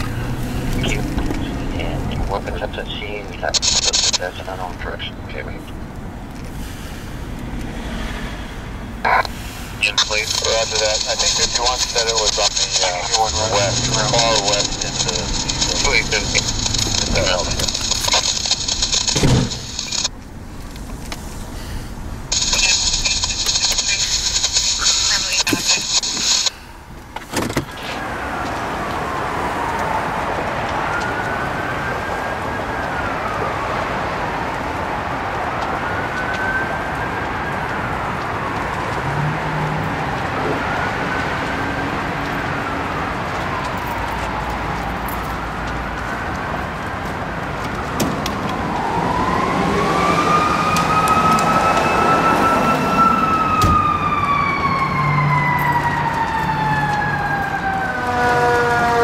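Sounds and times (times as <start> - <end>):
fire rushing noise: 0.0 - 26.8, 27.7 - 59.0
second siren: 9.8 - 20.1, 27.8 - 59.0
siren wailing: 9.8 - 20.1, 27.8 - 59.0.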